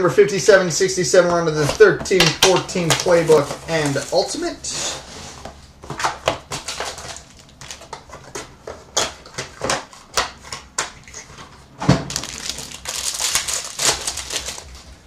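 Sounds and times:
foil card packs crinkling: 1.6s - 11.4s, 12.0s - 15.0s.

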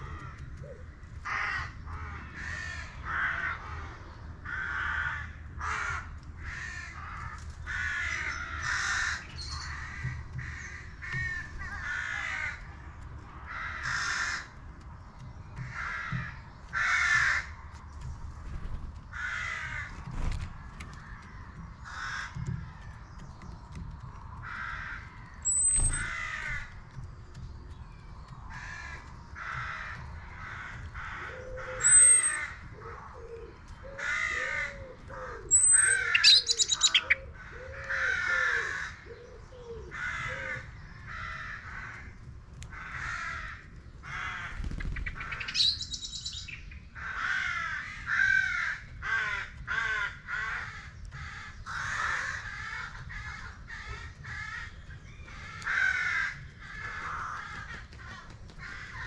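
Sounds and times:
crows cawing: 0.0s - 18.0s, 19.0s - 23.3s, 24.0s - 59.0s
songbird trill: 25.0s - 41.8s, 43.2s - 47.0s
songbird high thin calls: 35.5s - 37.2s.

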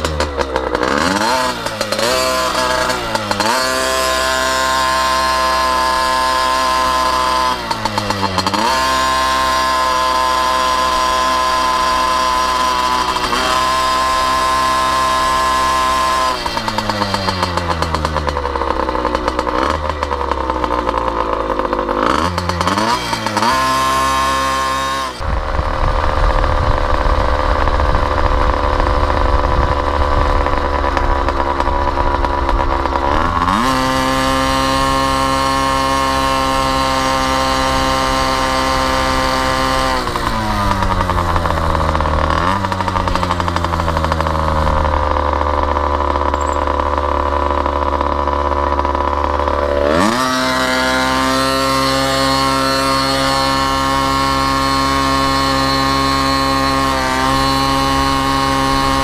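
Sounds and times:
small engine revving: 0.0s - 59.0s
heavy low rumble: 25.2s - 33.4s.

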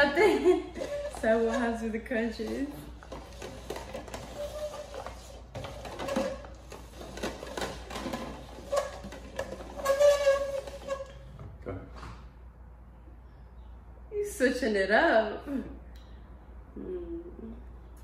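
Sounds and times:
plastic cups scraping on glass: 0.7s - 11.3s.

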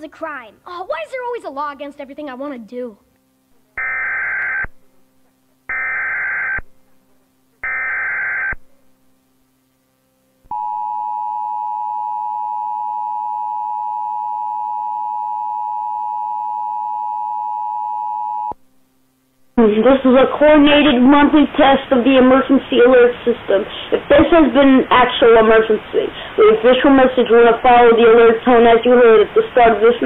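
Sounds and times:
digital header bursts: 3.8s - 4.7s, 5.7s - 6.6s, 7.6s - 8.6s.

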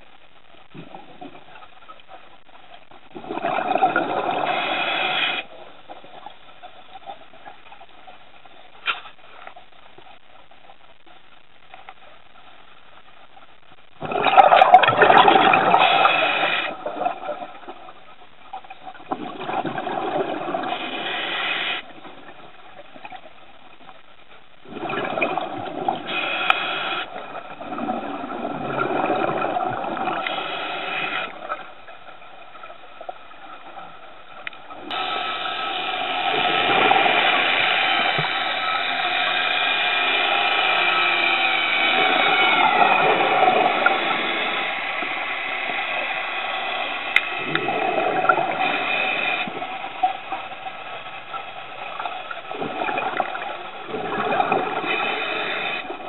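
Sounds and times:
underwater breathing bubbles: 3.1s - 5.6s, 14.0s - 17.1s, 19.1s - 22.0s, 24.6s - 31.6s, 42.0s - 49.9s, 52.5s - 56.0s
steady drone with held tones: 34.9s - 49.6s.

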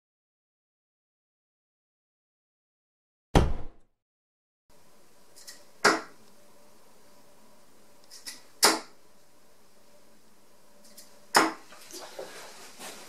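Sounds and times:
darts hitting dartboard: 3.4s - 3.8s, 5.8s - 6.2s, 8.6s - 9.0s, 11.3s - 11.6s
thud effect: 3.4s - 3.8s.

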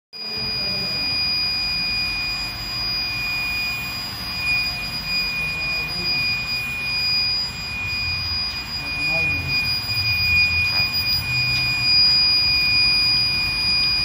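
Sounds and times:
high-pitched furnace whine: 0.2s - 14.0s.

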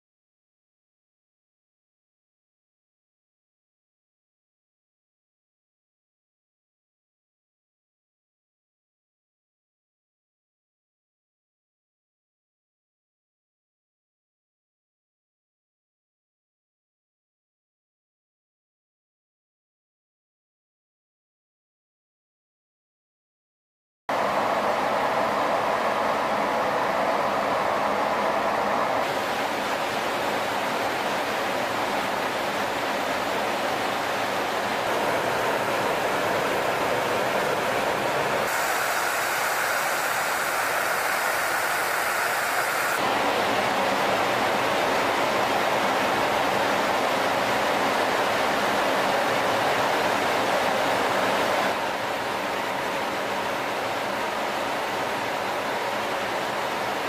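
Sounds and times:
aircraft cabin engine noise: 24.1s - 57.0s.

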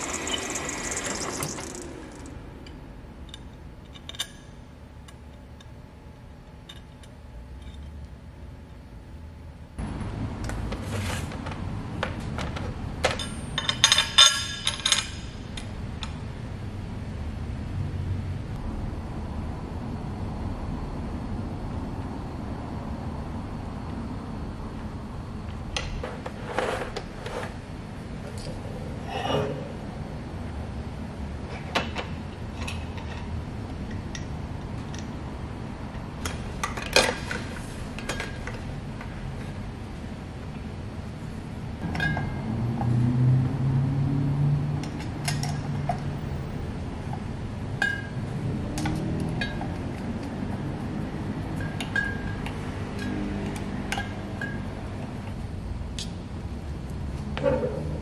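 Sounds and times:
metal parts clinking and knocking: 0.0s - 2.3s, 13.0s - 15.3s
steady low hum: 0.0s - 58.0s
small metal hardware clinking: 13.0s - 15.3s.

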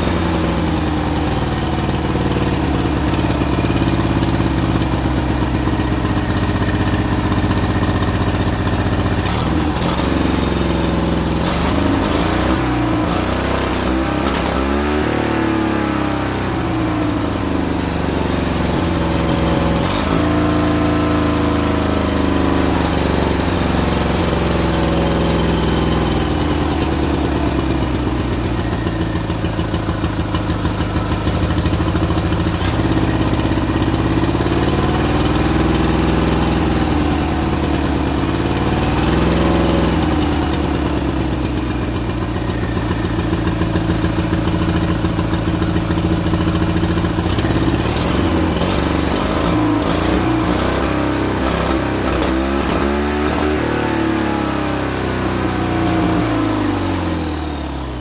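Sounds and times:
high turbo whine: 0.0s - 58.0s
engine revs surging: 9.0s - 29.9s, 30.8s - 58.0s.

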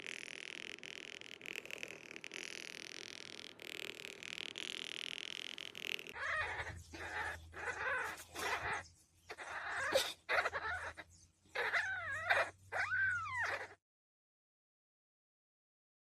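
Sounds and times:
kitten crying: 6.2s - 13.8s.

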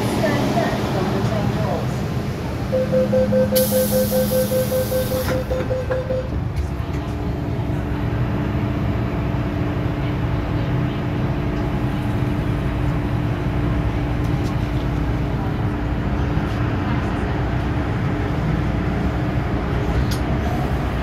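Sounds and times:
train and station hum: 0.0s - 21.0s
electronic door warning beeps: 2.7s - 6.4s.

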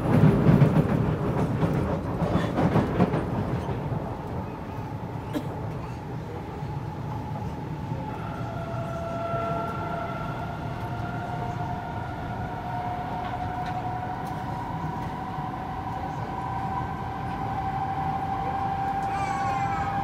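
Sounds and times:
wheels rumbling on track: 0.0s - 20.0s.

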